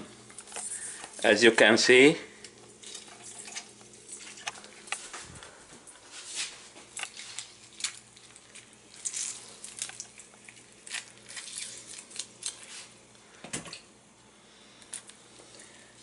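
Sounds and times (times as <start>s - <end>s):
wet squishes of lemon squeezing: 2.4s - 5.1s, 6.2s - 13.1s.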